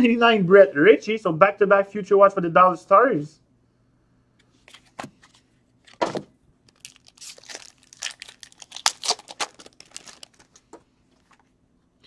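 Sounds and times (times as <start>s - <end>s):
card pack handling noise: 4.5s - 11.5s
wrapper crinkling and tearing: 6.6s - 11.4s.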